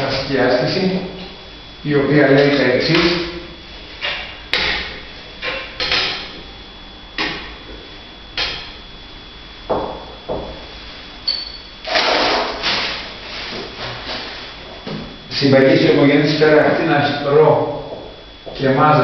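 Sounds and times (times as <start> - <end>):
scraping rustling noise: 12.0 - 14.6.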